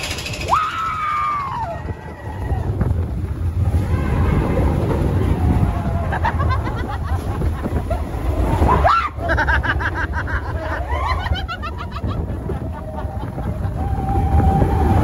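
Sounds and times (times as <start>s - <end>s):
roller coaster rumble: 0.0s - 15.0s
people laughing and giggling: 4.7s - 14.2s.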